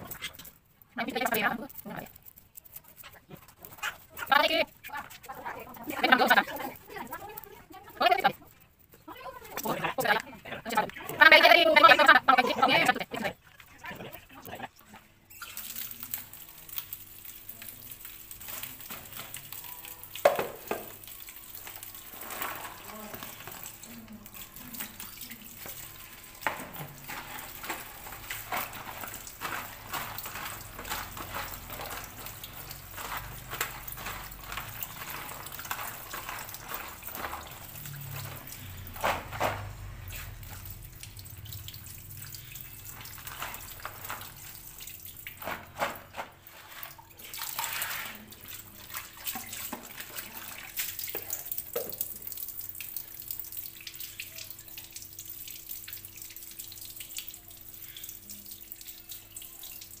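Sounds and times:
tap water splashing into colander: 15.4 - 60.0.

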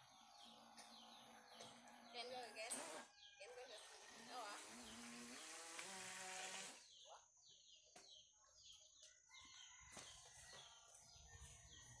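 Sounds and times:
bird chirping: 6.8 - 9.8.

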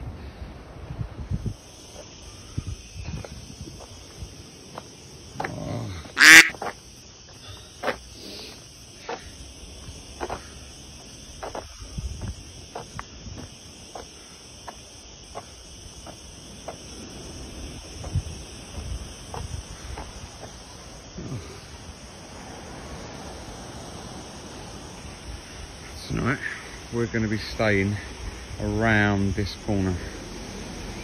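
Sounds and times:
steady high hiss: 0.0 - 31.0
footsteps on asphalt: 3.1 - 17.0, 17.9 - 20.8.

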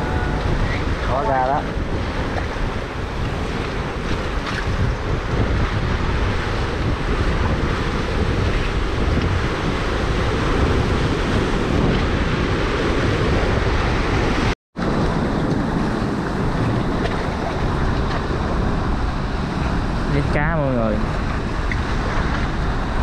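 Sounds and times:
sea surf churning between boulders: 0.0 - 23.0
wind buffeting microphone: 0.0 - 23.0.

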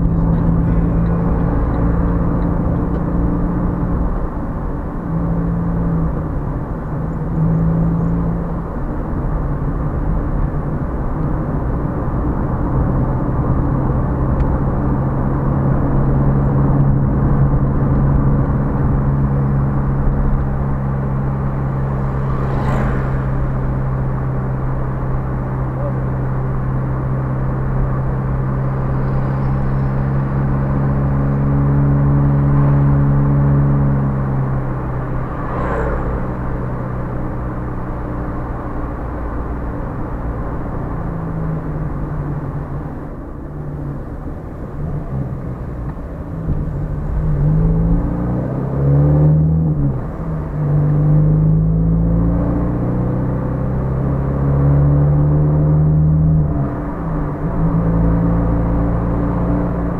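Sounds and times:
car engine: 0.0 - 59.9
road rumble: 0.0 - 59.9.

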